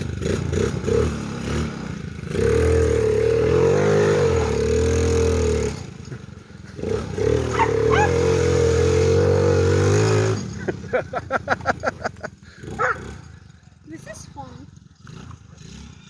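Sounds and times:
quad bike engine revving: 0:00.0 - 0:16.0.

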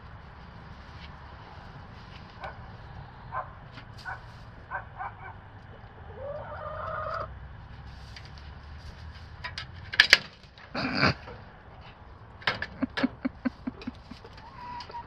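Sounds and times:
hens clucking: 0:01.0 - 0:07.5, 0:10.7 - 0:15.0.

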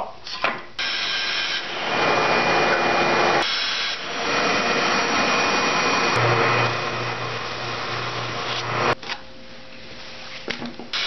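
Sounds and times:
bandsaw cutting wood: 0:00.8 - 0:09.0.

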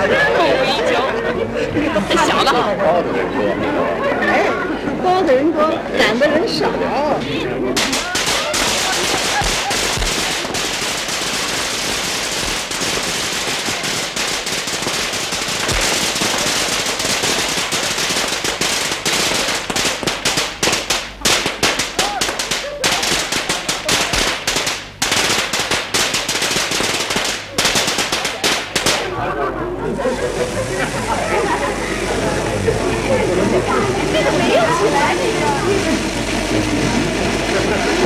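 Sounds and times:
firecrackers crackling: 0:07.8 - 0:38.0.

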